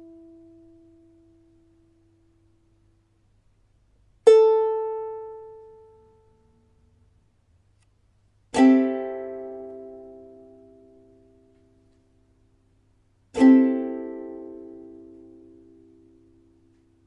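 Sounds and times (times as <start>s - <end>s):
ukulele strum: 4.2s - 6.6s, 8.5s - 12.2s, 13.3s - 17.0s
plucked ukulele note: 8.5s - 11.8s, 13.3s - 16.3s.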